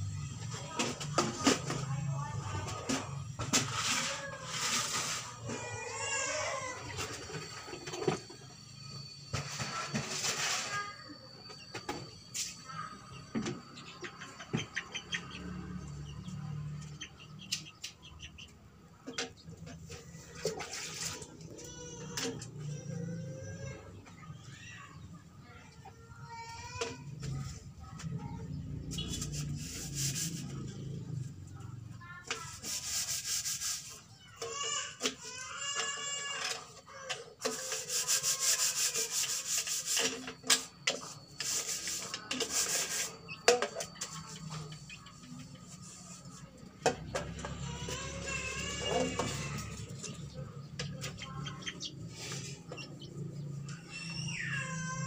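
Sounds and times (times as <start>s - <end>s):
scratchy rubbing and scraping: 3.5s - 7.3s, 9.4s - 11.0s, 19.8s - 22.3s, 28.5s - 30.8s, 32.3s - 35.0s, 37.4s - 46.5s
small birds chirping: 11.4s - 19.7s, 27.2s - 31.0s, 47.6s - 55.0s.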